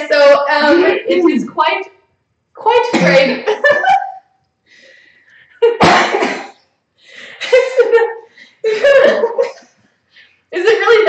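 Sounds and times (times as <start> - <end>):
person coughing: 2.9 - 3.5, 5.8 - 6.6.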